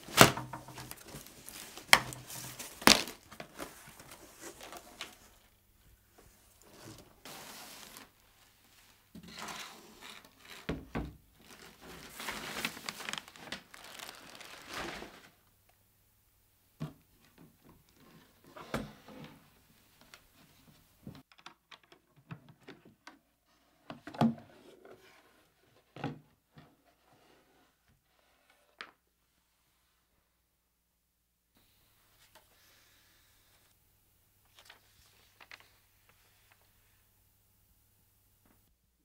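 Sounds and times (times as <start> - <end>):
plastic wrapping crinkling: 0.0 - 5.5, 6.5 - 10.7, 11.3 - 15.3.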